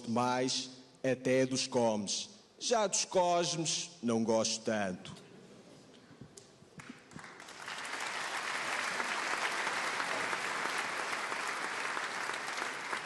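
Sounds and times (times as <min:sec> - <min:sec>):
audience applauding: 0:06.8 - 0:13.0.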